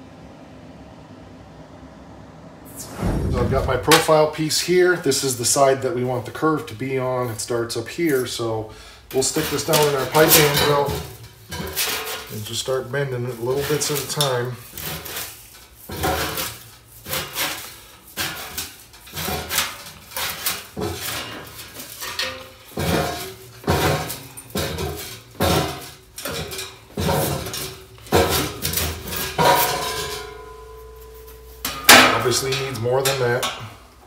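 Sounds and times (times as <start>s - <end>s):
sheet steel clanking on pipes: 9.1s - 33.9s.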